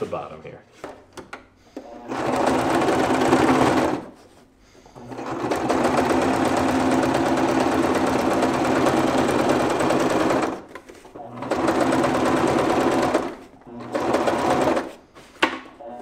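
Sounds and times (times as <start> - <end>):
sewing machine stitching: 1.8 - 4.2, 5.0 - 15.0.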